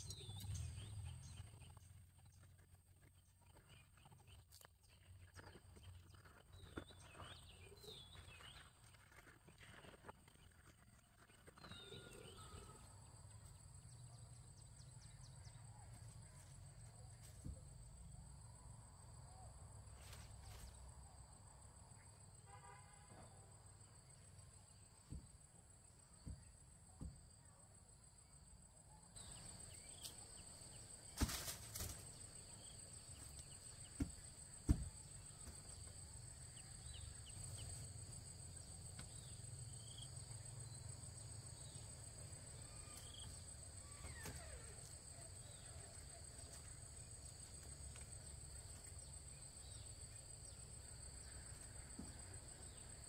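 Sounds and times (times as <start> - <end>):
insects droning: 5.8 - 53.0.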